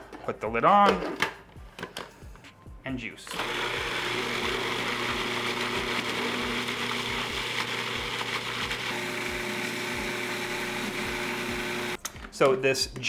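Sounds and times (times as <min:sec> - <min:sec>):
food processor whirring: 0:03.3 - 0:12.0.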